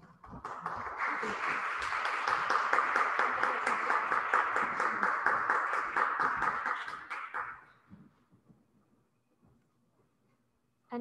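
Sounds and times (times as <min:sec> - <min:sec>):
audience applause in reverberant hall: 0:00.0 - 0:07.9.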